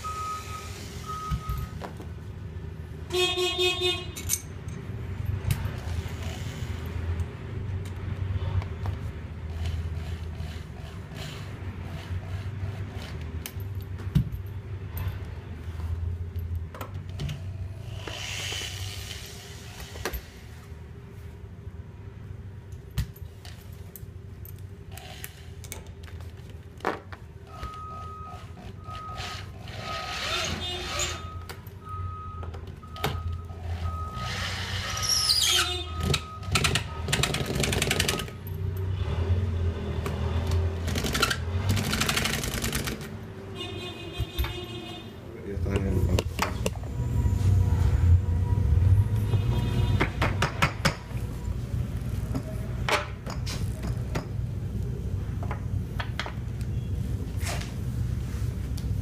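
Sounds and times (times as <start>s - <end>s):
metal clicks and clinks: 4.1s - 5.8s
cordless drill driver: 17.8s - 20.3s, 29.0s - 31.3s, 34.2s - 35.2s.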